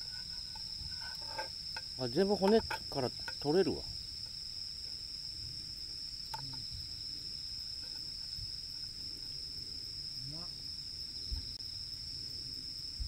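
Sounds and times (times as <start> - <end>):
crickets and night insects chirring: 0.0 - 13.0.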